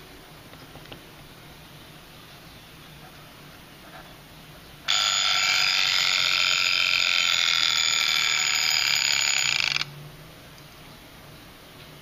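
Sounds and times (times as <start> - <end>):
alarm clock ringing: 4.9 - 9.9.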